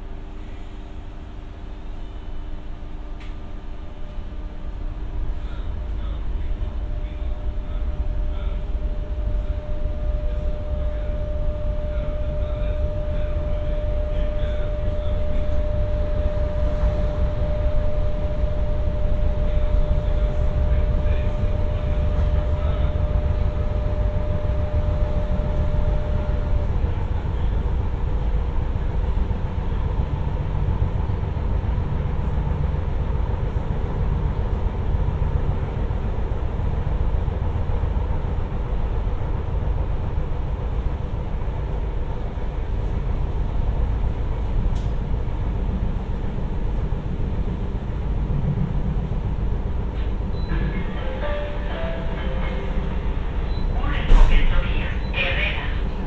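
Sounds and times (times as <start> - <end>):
electric train rumble: 0.0 - 56.0
steady whine: 0.0 - 56.0
faint high tone: 50.3 - 55.2.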